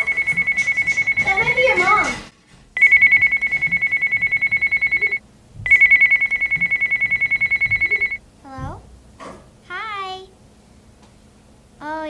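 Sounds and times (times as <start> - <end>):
electronic telephone ringer trilling: 0.0 - 2.2, 2.8 - 8.2.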